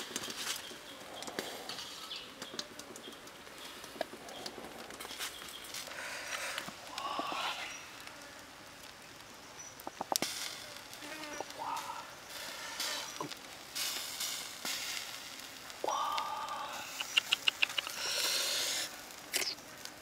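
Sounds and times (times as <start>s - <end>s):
faint sizzling: 0.0s - 20.0s.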